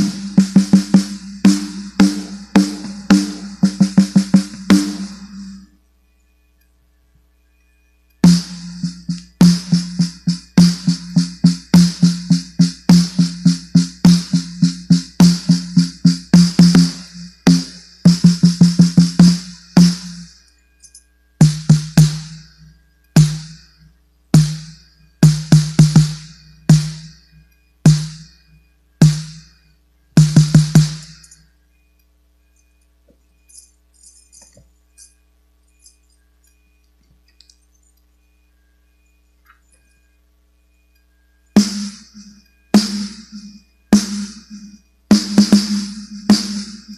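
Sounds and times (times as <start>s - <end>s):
snare drum strokes and rolls: 41.6s - 42.1s, 45.1s - 46.9s.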